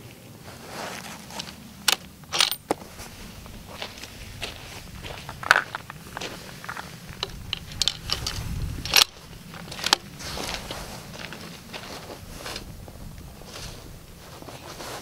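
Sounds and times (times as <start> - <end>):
footsteps on gravel: 0.5 - 15.0
rifle bolt clicks and knocks: 1.8 - 2.8, 7.2 - 10.1.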